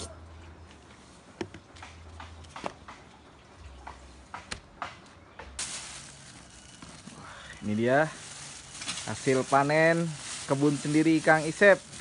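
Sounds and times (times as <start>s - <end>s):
steady hiss: 5.6s - 12.0s.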